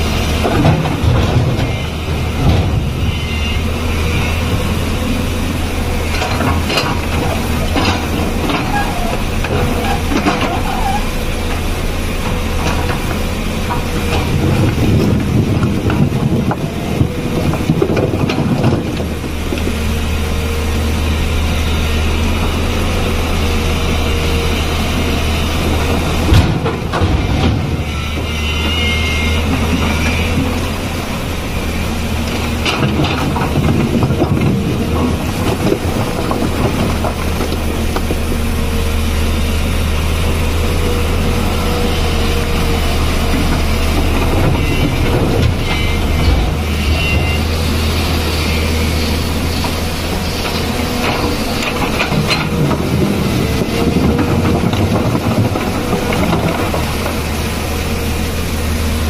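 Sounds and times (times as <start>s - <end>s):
excavator engine humming: 0.0s - 59.0s.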